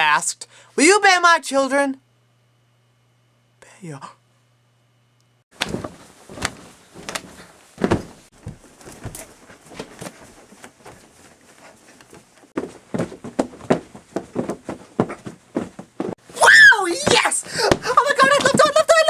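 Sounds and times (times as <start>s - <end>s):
thumps and knocks on floor: 5.6s - 10.1s, 12.6s - 16.2s
rustling: 5.6s - 16.4s.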